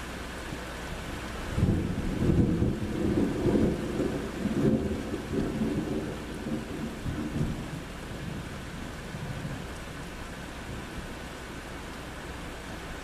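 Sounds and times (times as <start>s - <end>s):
steady rain: 0.0s - 13.0s
thunder rumbling: 1.5s - 9.9s.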